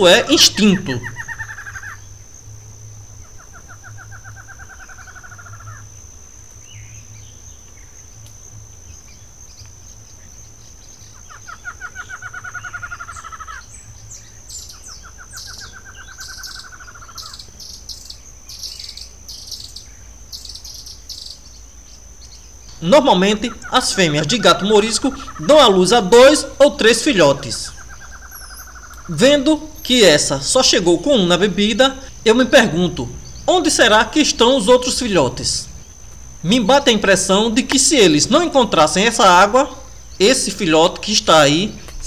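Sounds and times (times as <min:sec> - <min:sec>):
bird rapid pulsed trill: 0:00.0 - 0:42.0
high-pitched insect buzz: 0:00.0 - 0:42.0.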